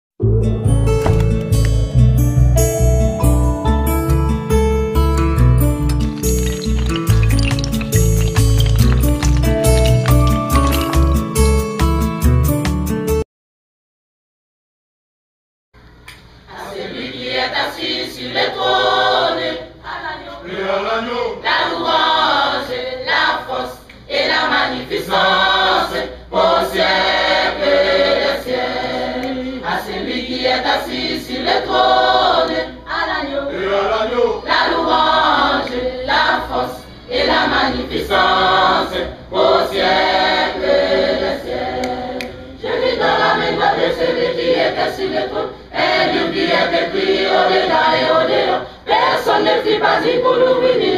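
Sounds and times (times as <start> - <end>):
choir singing a hymn: 16.5 - 50.9.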